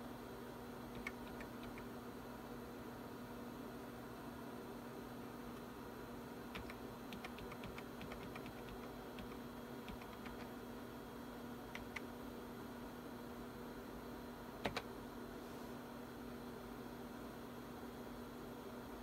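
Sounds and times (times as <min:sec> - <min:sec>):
steady electrical hum: 0:00.0 - 0:19.0
keyboard keys clicking: 0:01.0 - 0:01.9, 0:06.5 - 0:10.5, 0:11.7 - 0:12.1, 0:14.6 - 0:14.9.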